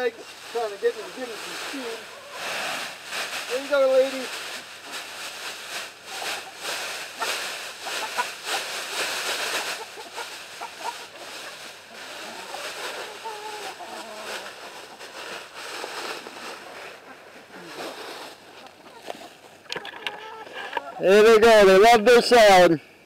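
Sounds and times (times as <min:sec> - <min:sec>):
plastic bag rustling and crinkling: 0:00.0 - 0:21.6
hens clucking: 0:00.0 - 0:21.7.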